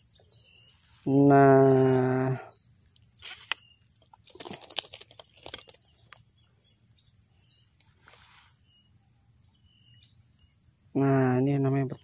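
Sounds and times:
rustles: 0:02.8 - 0:06.6, 0:07.7 - 0:09.0
high-pitched insect drone: 0:05.4 - 0:12.0.

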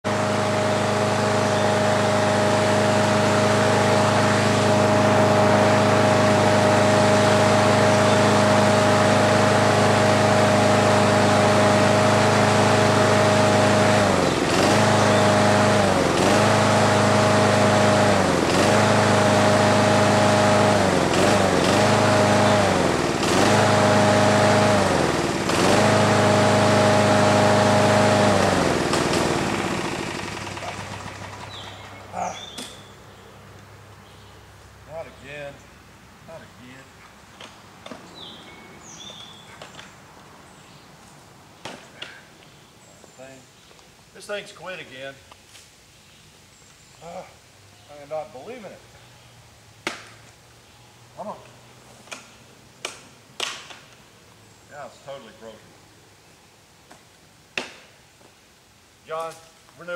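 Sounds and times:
lawn mower engine running: 0:00.0 - 0:32.9.

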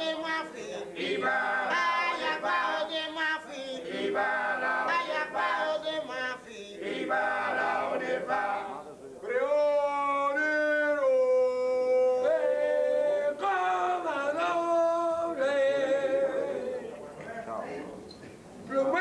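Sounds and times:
group singing a chorus: 0:00.0 - 0:08.8, 0:11.9 - 0:17.0.

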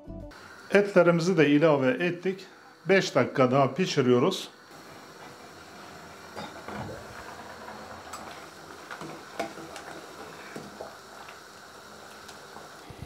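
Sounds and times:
soup bubbling: 0:04.6 - 0:12.9
ladle stirring soup: 0:06.2 - 0:12.8.

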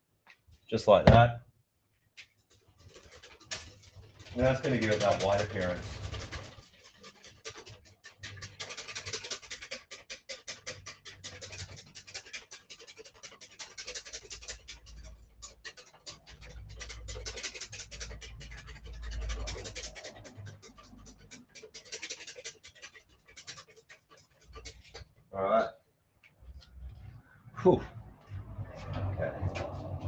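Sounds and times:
whisk scraping in a bowl: 0:02.5 - 0:25.2.

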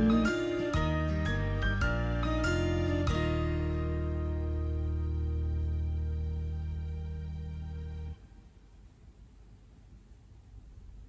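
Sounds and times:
held music chord: 0:00.0 - 0:08.2.

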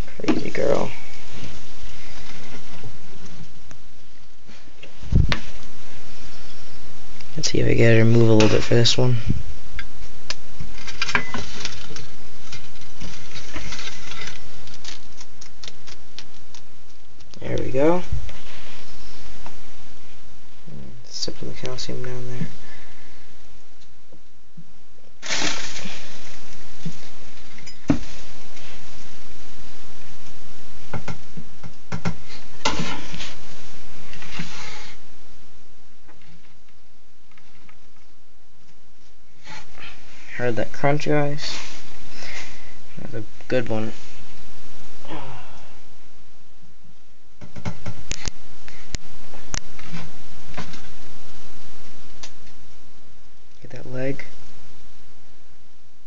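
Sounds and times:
lizard crunching a cricket: 0:10.3 - 0:17.4.

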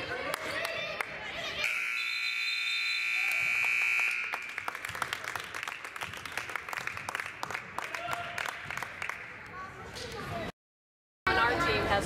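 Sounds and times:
people clapping: 0:00.1 - 0:01.2, 0:03.2 - 0:10.2
scoreboard buzzer tone: 0:01.7 - 0:04.4.

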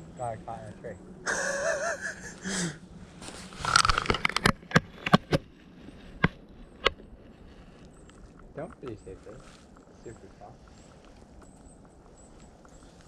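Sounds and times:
dry brush rustling: 0:03.0 - 0:04.1, 0:05.4 - 0:13.0.

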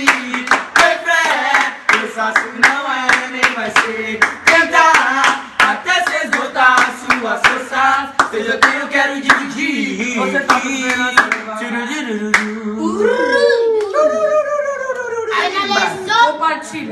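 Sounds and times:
hand claps: 0:00.0 - 0:09.6, 0:10.4 - 0:11.5, 0:12.3 - 0:12.6
person singing: 0:08.3 - 0:15.5.

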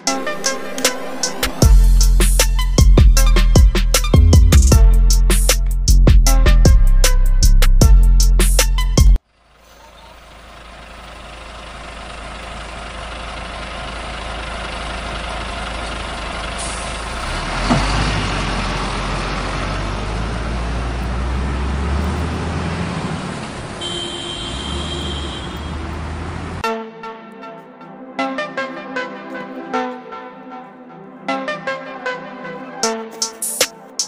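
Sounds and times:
heavy vehicle engine running: 0:09.2 - 0:26.6.

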